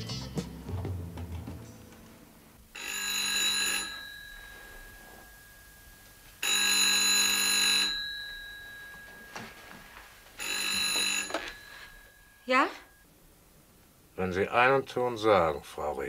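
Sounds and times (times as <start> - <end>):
telephone bell ringing: 2.7 - 13.1.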